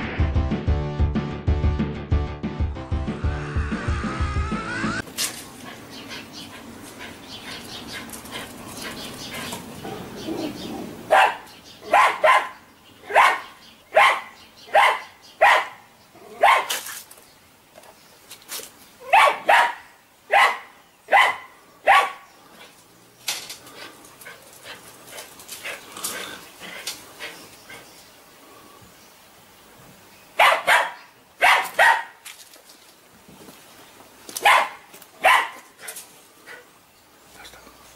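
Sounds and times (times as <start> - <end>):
music: 0.0 - 5.0
dog barking: 11.1 - 16.7, 19.0 - 22.2, 30.4 - 32.2, 34.4 - 35.7.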